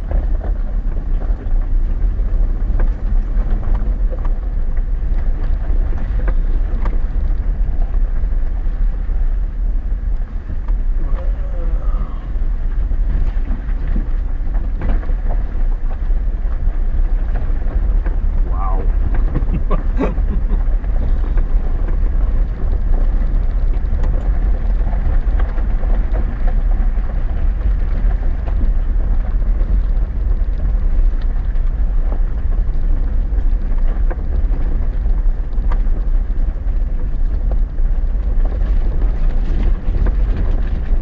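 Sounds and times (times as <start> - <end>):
rocks knocking and rattling: 0.0 - 41.0
vehicle engine and tyres rumbling: 0.0 - 41.0.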